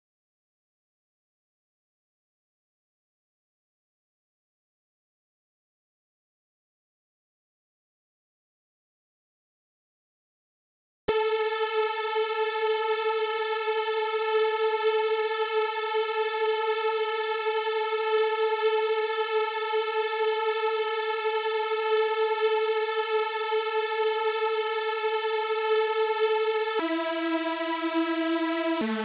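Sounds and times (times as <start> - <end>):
rich buzzing synth tone: 11.1 - 29.0.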